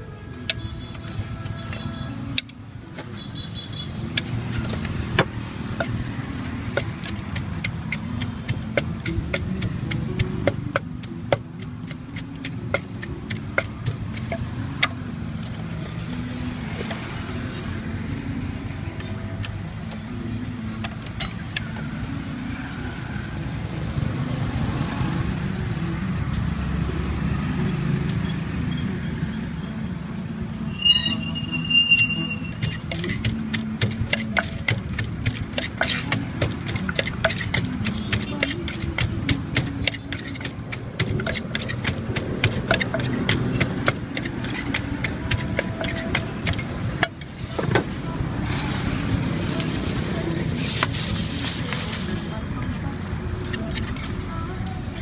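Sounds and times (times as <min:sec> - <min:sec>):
wooden pestle knocking in mortar: 0:06.6 - 0:15.0, 0:32.5 - 0:47.2.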